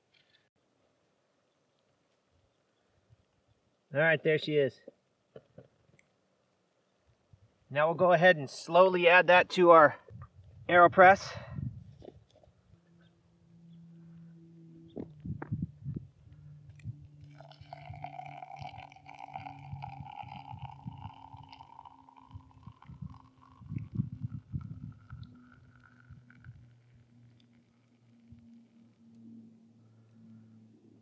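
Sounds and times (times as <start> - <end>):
low thuds and rumbles: 14.9 - 16.0
water pouring in thin stream: 17.2 - 28.9.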